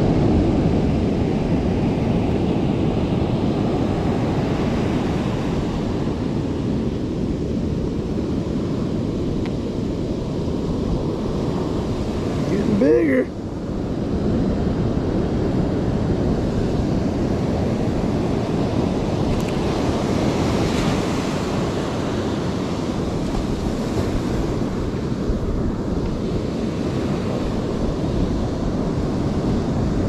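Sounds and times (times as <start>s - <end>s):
wind buffeting microphone: 0.0s - 30.0s
ocean surf breaking: 8.0s - 13.9s, 14.9s - 30.0s.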